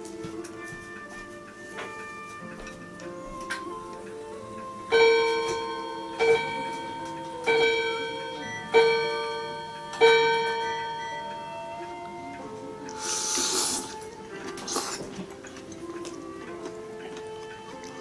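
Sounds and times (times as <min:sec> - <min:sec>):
bell-like chime ringing: 0:04.9 - 0:12.9.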